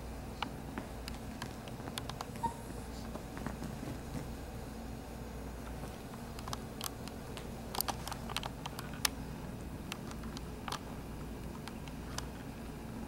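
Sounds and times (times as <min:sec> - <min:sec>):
steady low hum: 0:00.0 - 0:13.0
puppies scuffling on couch: 0:00.7 - 0:04.4.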